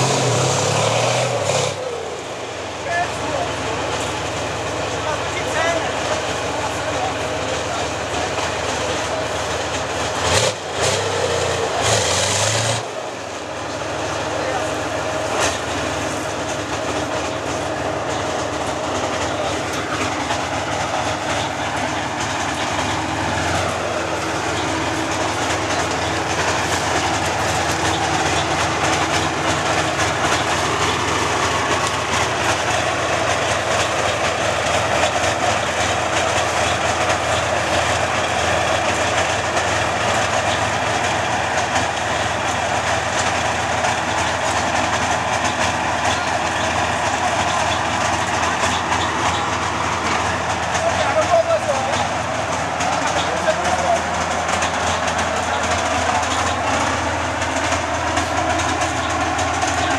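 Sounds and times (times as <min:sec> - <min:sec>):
tracked vehicle engine running: 0:00.0 - 0:59.9
clattering tracks: 0:13.4 - 0:59.9.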